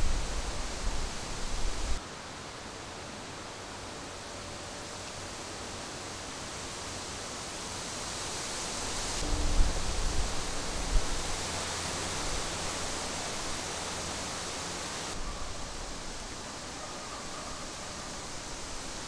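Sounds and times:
steady outdoor hiss: 0:00.0 - 0:19.0
wind buffeting microphone: 0:09.2 - 0:11.4.

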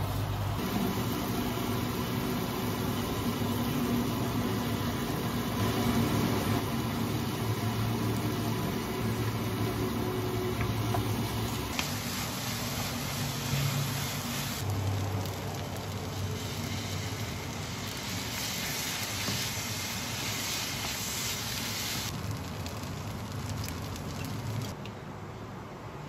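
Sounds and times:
kitchen fan humming: 0:00.0 - 0:24.8
rice frying in a pan: 0:00.0 - 0:24.8.

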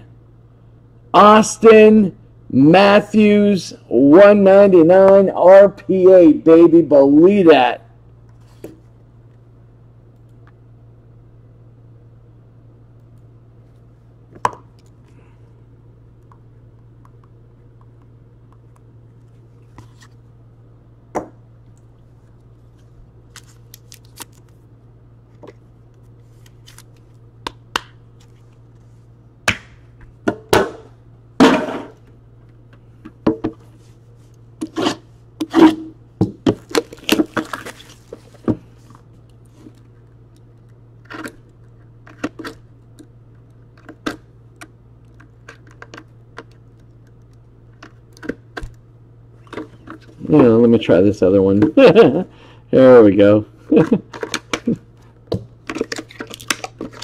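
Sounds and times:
low electrical hum: 0:00.0 - 0:57.0
hands handling cards and packaging: 0:22.1 - 0:24.6, 0:25.3 - 0:28.9, 0:36.4 - 0:42.6, 0:55.7 - 0:57.0.

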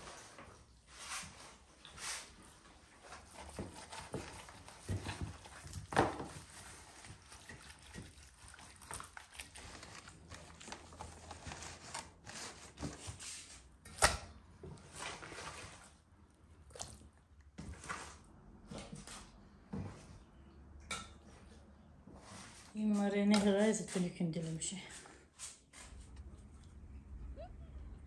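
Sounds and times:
wet squelching of raw meat: 0:03.3 - 0:11.2, 0:16.6 - 0:18.2.

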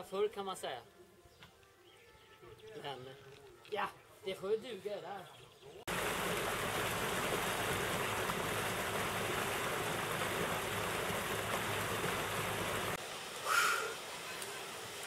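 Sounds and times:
water rushing into lock: 0:05.9 - 0:15.0.

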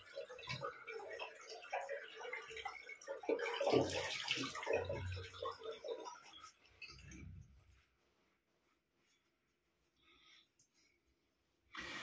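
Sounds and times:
water dripping: 0:00.0 - 0:07.8.

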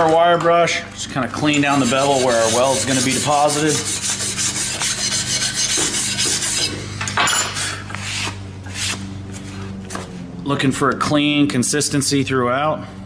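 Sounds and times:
steady low hum: 0:00.0 - 0:13.0
wire brush scrubbing steel: 0:01.4 - 0:06.8.

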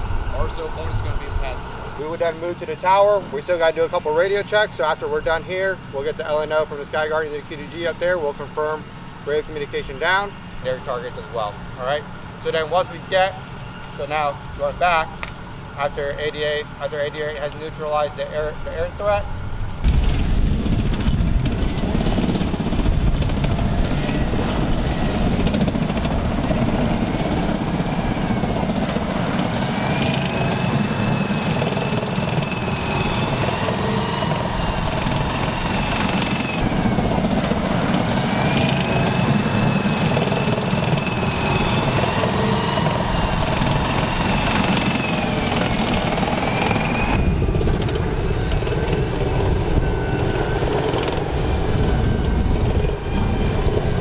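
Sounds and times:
tank low rumble: 0:00.0 - 0:54.0
turbine engine whining: 0:00.0 - 0:54.0.

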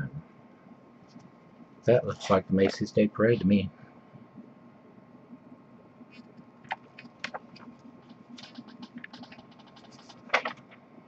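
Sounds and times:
paper pages rustling: 0:06.7 - 0:10.8.

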